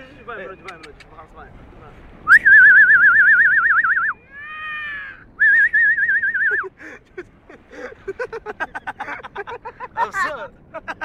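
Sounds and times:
falling wavering whistle: 2.3 - 4.2, 5.4 - 6.6.

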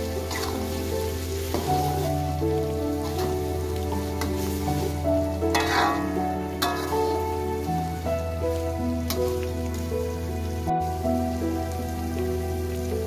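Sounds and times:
spatula scraping a wok: 0.0 - 7.8
background music: 0.0 - 13.0
stir-fry sizzling in a wok: 0.0 - 13.0.

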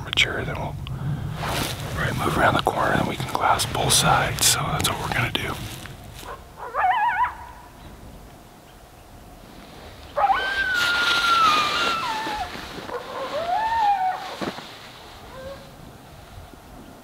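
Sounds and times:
coyotes howling: 6.3 - 7.8, 10.1 - 14.5, 15.2 - 15.9.

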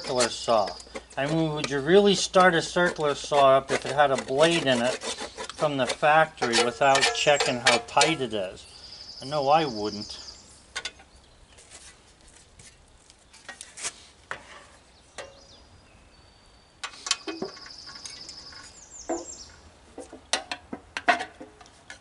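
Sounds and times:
hand tools being set down: 6.4 - 8.2, 16.8 - 18.2, 20.0 - 22.0.

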